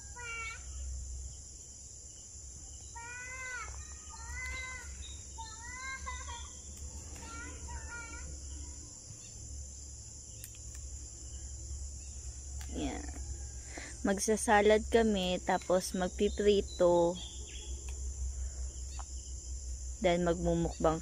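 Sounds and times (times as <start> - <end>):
crickets chirping: 0.0 - 21.0.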